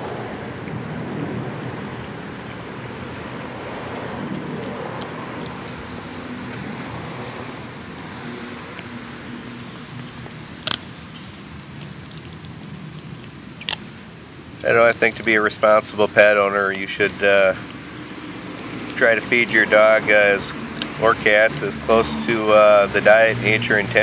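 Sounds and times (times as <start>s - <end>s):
dog chewing crunchy bone: 0.0s - 24.0s
steady rushing background noise: 0.0s - 24.0s
sharp bone cracks: 10.0s - 11.0s, 11.7s - 13.9s, 20.7s - 21.0s.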